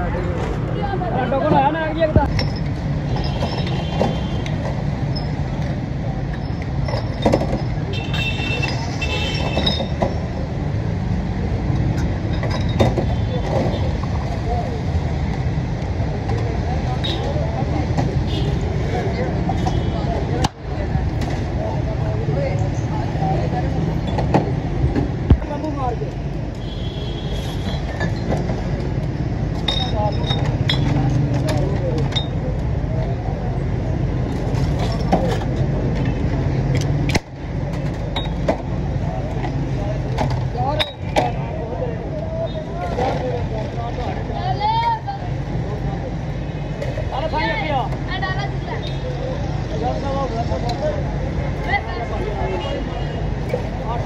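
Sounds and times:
street traffic rumble: 0.0s - 54.0s
glass bottles clinking: 29.6s - 31.2s.

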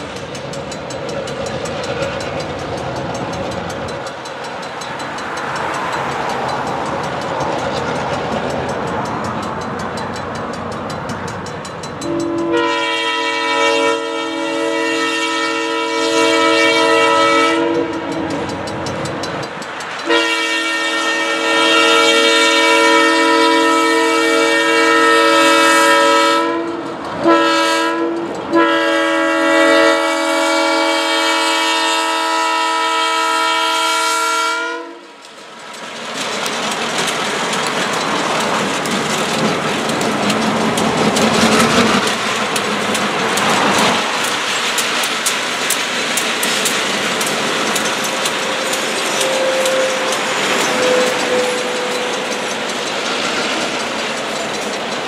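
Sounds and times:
freight train passing: 0.0s - 55.0s
locomotive air horn blasts: 12.0s - 18.3s, 20.0s - 35.2s, 49.1s - 52.5s.

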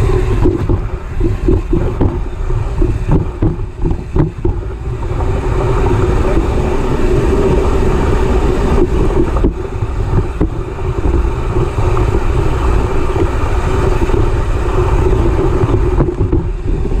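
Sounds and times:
bike tyre rolling on dirt: 0.0s - 17.0s
wind buffeting microphone: 0.0s - 17.0s.

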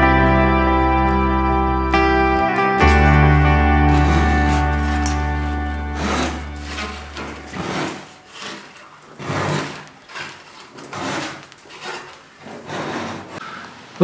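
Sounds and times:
hand sanding wood: 3.6s - 13.4s.

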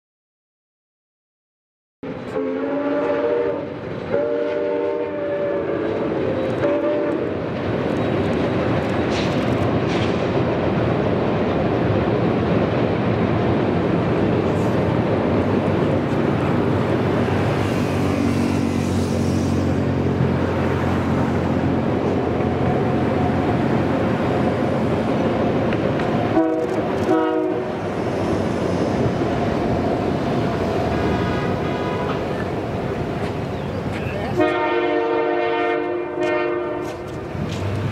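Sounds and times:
train rumbling across steel bridge: 2.0s - 37.9s
steam locomotive chime whistle: 2.3s - 6.0s.

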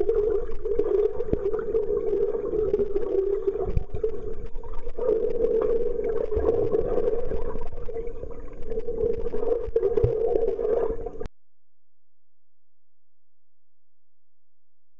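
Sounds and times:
muffled underwater hum: 0.0s - 11.3s
water movement: 0.0s - 11.3s.

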